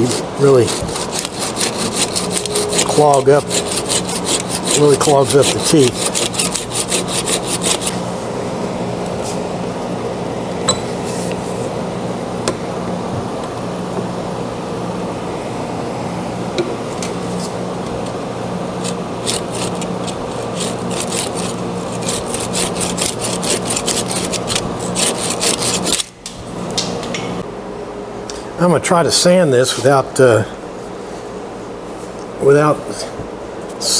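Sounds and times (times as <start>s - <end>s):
hand saw cutting wood: 0.0s - 8.0s, 18.8s - 26.1s
steady low hum: 0.0s - 33.9s.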